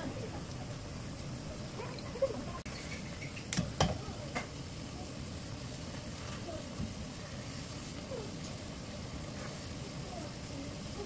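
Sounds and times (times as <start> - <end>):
stew bubbling at a boil: 0.0 - 11.0.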